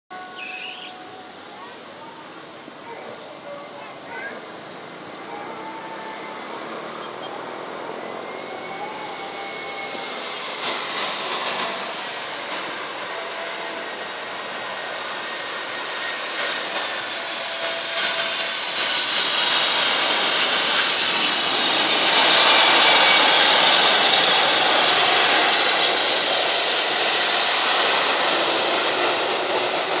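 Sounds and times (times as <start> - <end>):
high whine falling in pitch: 0.1 - 2.2
jet engines roaring on landing: 0.1 - 30.0.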